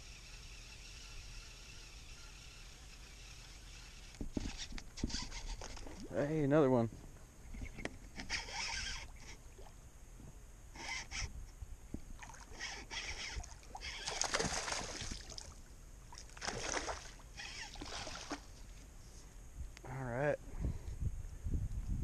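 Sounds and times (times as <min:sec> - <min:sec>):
fish splashing at water surface: 0:13.6 - 0:18.5.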